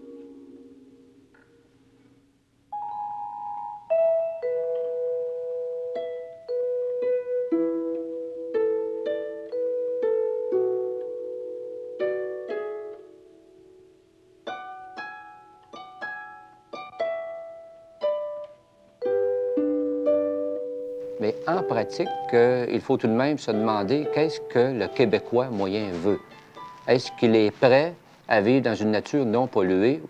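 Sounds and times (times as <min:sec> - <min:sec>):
plucked string melody: 0:00.0 - 0:30.0.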